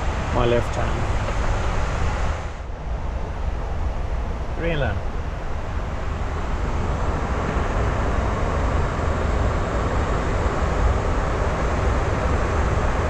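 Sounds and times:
airplane cockpit rushing noise: 0.0s - 2.5s
low engine rumble: 0.0s - 13.0s.

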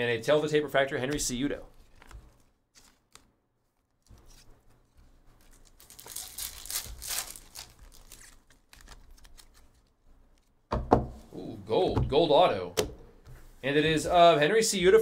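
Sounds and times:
wrapper tearing and crinkling: 5.4s - 9.9s.

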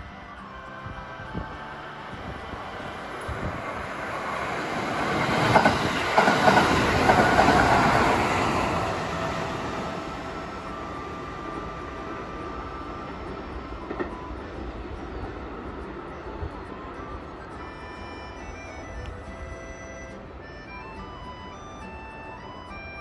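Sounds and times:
train wheels clacking over joints: 3.1s - 16.9s.

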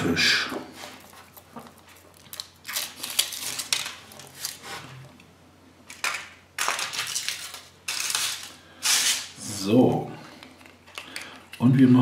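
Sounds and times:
foil wrapper crinkling: 1.2s - 4.7s, 5.9s - 9.4s.

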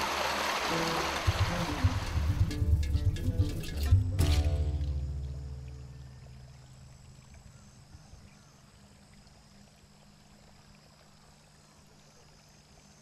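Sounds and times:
music: 0.7s - 6.5s
low hum: 0.8s - 10.4s.

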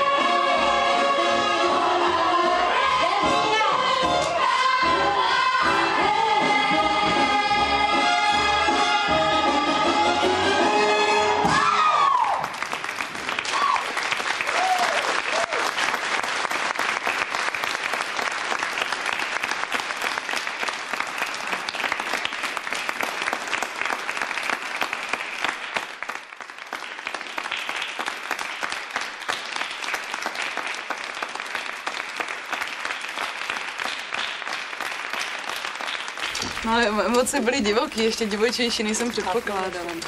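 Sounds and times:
audience applauding: 11.4s - 40.0s.

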